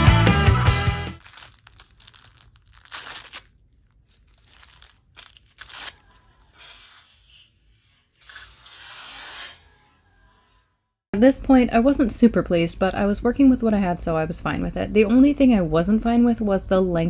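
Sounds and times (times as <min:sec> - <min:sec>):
paper and fabric rustling: 0:01.2 - 0:06.5
paper backing tearing: 0:01.2 - 0:10.7.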